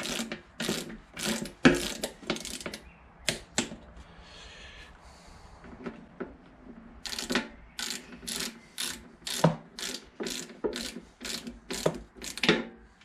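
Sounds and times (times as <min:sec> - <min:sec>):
torque wrench ratchet clicking: 0:00.0 - 0:02.8, 0:07.0 - 0:12.5.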